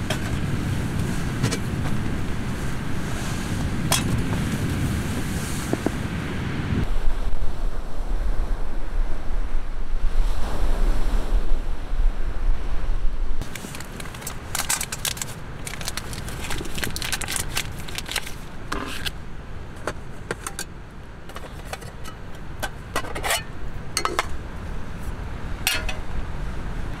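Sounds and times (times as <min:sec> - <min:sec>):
metal cookware clinking and scraping: 0:20.3 - 0:20.7, 0:21.3 - 0:24.4, 0:25.7 - 0:26.1.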